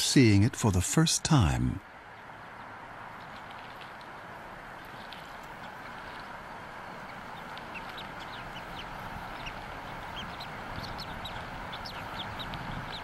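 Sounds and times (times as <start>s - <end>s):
steady background hiss: 0.0s - 13.0s
eagle chirping: 6.9s - 13.0s.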